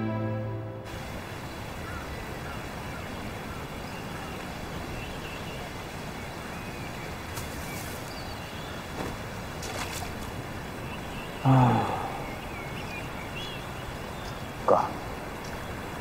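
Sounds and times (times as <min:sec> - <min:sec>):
outdoor background hiss: 0:00.0 - 0:16.0
brief rustles: 0:08.9 - 0:10.3
faint bird chirps: 0:10.8 - 0:15.8.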